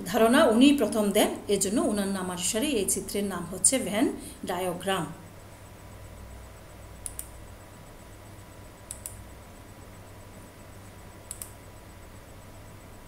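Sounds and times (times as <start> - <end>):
faint steady hum: 0.0 - 13.0
computer mouse double clicks: 7.0 - 7.3, 8.9 - 9.2, 11.3 - 11.6.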